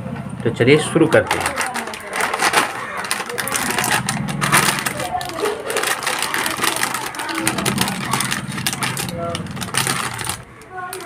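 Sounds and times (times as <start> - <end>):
plastic snack packet crackling: 1.0 - 11.0.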